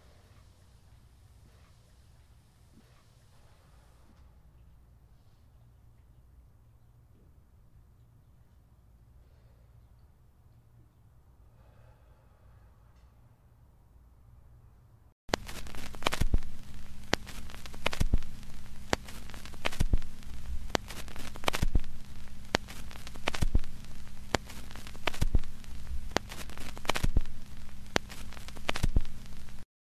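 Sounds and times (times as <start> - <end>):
steady low hum: 0.0 - 29.6
sharp pops: 15.3 - 29.6
crackling static: 15.3 - 29.7.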